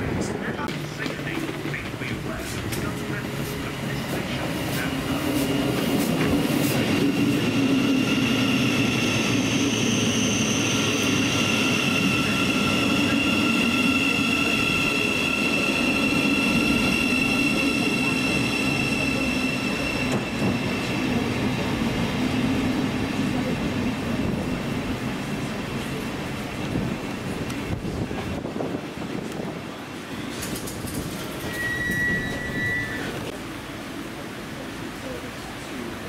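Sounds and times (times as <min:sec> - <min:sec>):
train running past: 0:00.0 - 0:36.0.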